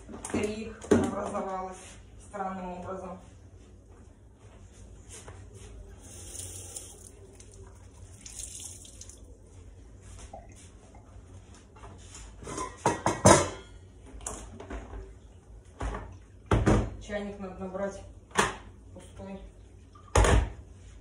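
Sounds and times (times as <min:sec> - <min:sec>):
damp cloth wiping counter: 0:04.7 - 0:10.9.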